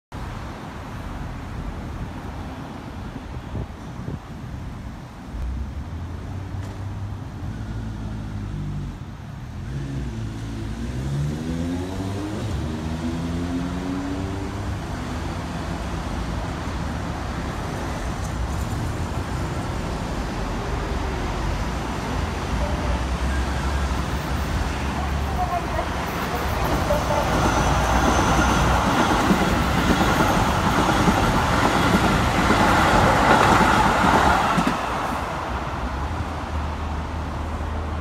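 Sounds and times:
road traffic passing: 0.2 - 38.0
vehicle engine accelerating: 9.6 - 15.4.

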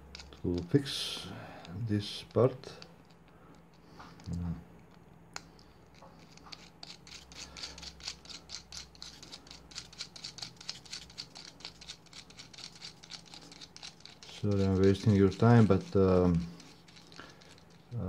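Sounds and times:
metallic clicking and scratching: 0.0 - 0.8, 5.9 - 18.0.

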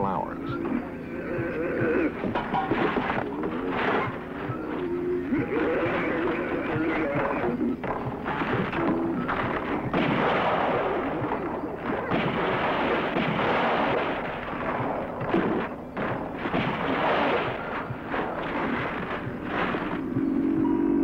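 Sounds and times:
heavy crashing and banging: 2.1 - 20.3.

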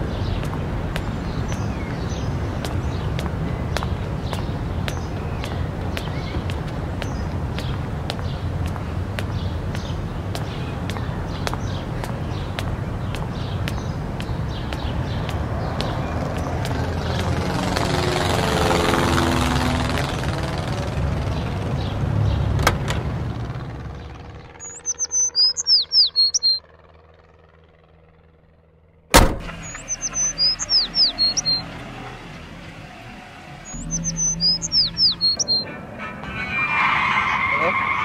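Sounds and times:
bird chirping: 24.6 - 26.7, 29.5 - 36.1
sharp knock: 29.1 - 29.6
car driving past: 29.2 - 38.0.

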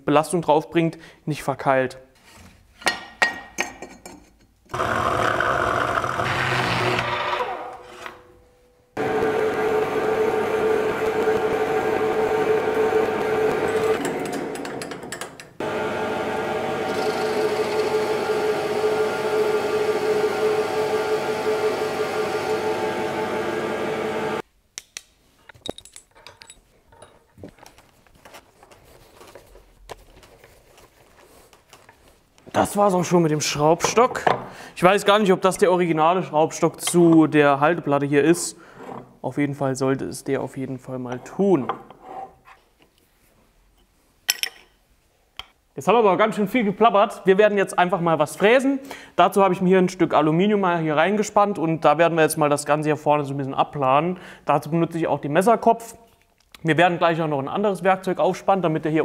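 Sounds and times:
band saw cutting metal bar: 4.7 - 8.2, 9.0 - 15.0, 15.6 - 24.4
metallic clinks of vise parts: 25.4 - 27.3.

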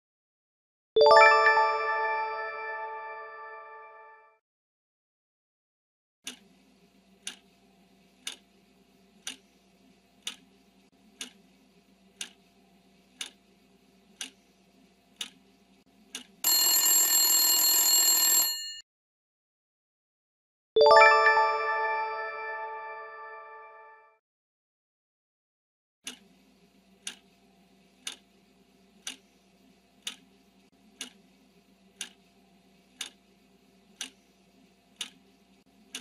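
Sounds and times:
alarm bell ringing: 1.0 - 4.1, 16.5 - 18.8.

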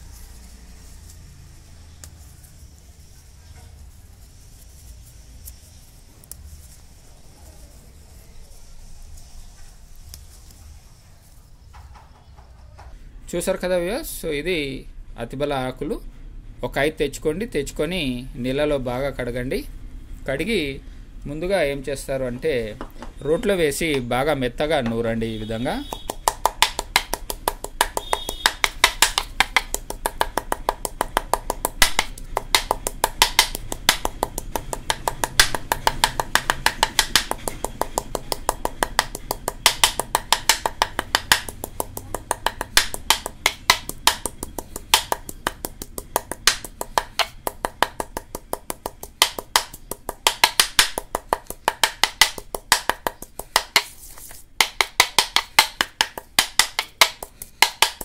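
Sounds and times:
pestle grinding in ceramic mortar: 25.8 - 58.0.

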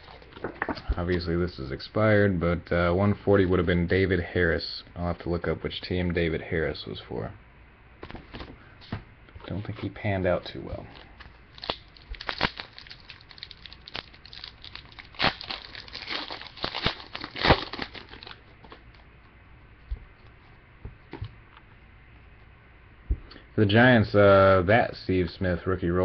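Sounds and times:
plastic wrapper crinkling: 10.9 - 19.0.

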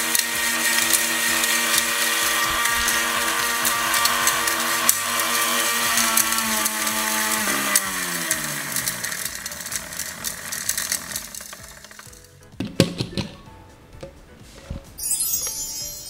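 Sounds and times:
mixer grinder motor whining: 0.0 - 12.4.

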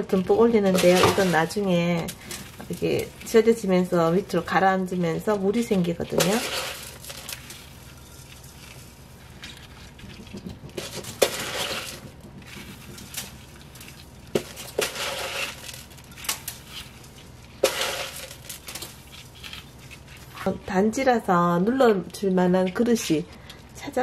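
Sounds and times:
salt grains crunching: 6.2 - 20.3
sharp clicks and knocks: 9.4 - 13.4.

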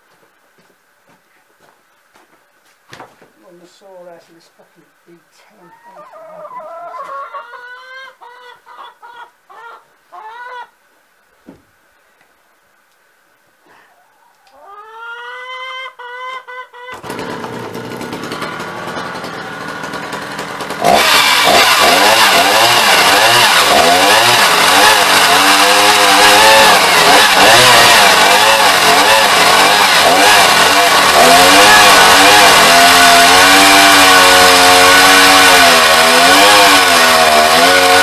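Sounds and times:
chainsaw cutting log: 16.9 - 38.0.

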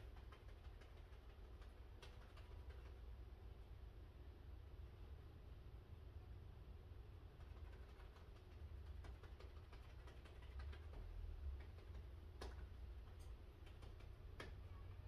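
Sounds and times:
small ticks and clicks: 0.0 - 3.0, 7.3 - 14.9
low steady rumble: 0.0 - 15.0.

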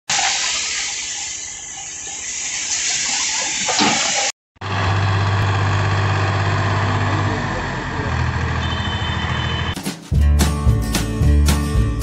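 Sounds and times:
tractor diesel engine running: 4.6 - 9.8.

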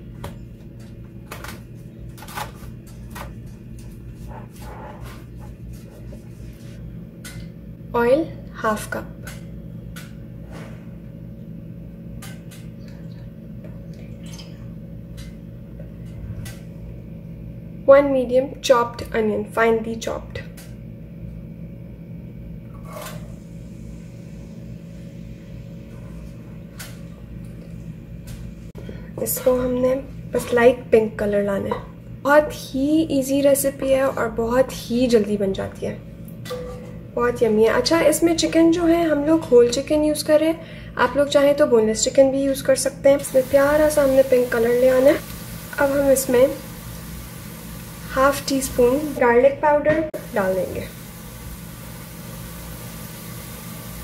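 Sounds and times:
low background hum: 0.0 - 54.0
onion sizzling into saucepan: 43.2 - 49.2, 50.2 - 54.0.

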